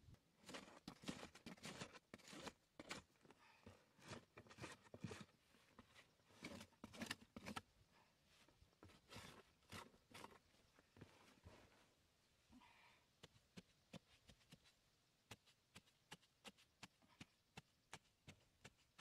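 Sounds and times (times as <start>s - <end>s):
tool tapping on grass: 13.2s - 19.0s.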